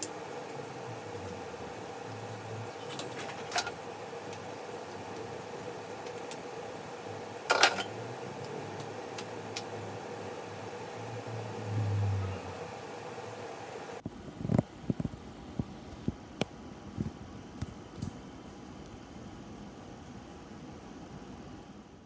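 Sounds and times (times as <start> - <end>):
low hum: 0.3 - 13.4.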